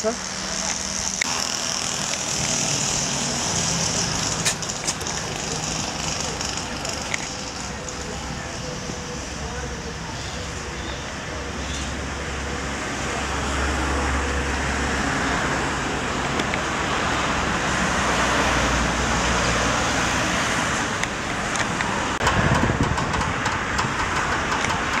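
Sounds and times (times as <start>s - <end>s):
road traffic: 0.0s - 25.0s.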